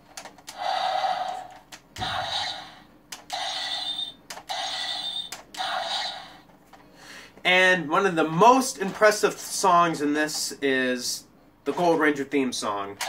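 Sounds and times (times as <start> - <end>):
toy electronic sound effects: 2.0 - 6.4.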